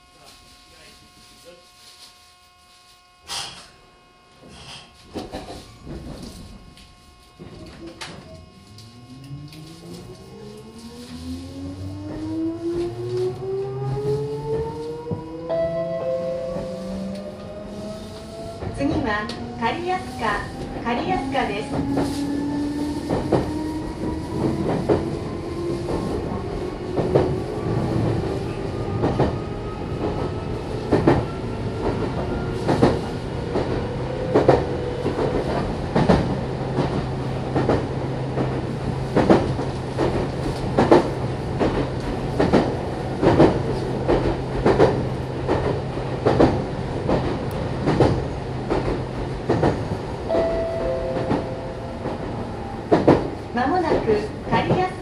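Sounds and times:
electric train motor whine: 0.0 - 42.2.

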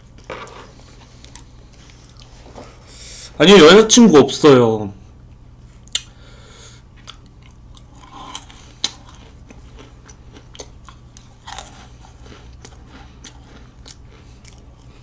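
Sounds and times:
sharp mouth clicks: 5.8 - 6.1
wet chewing: 7.0 - 15.0.

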